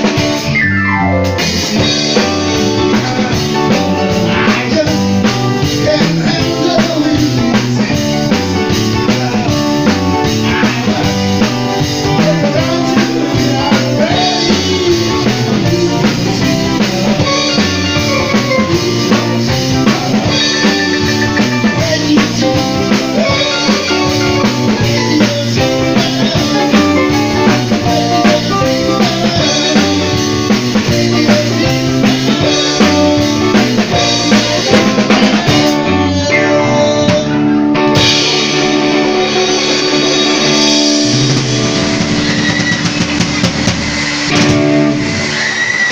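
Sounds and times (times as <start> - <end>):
drum kit rock beat: 0.0 - 45.9
electric guitar: 0.0 - 45.9
man singing into microphone: 2.0 - 40.9.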